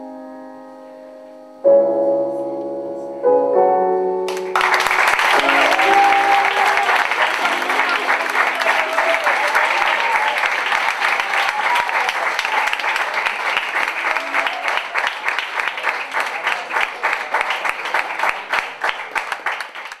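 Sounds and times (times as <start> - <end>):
audience applauding: 4.3 - 20.0.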